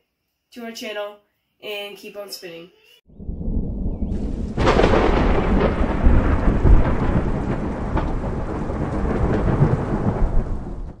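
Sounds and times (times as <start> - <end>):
low rumbling noise: 3.1 - 11.0.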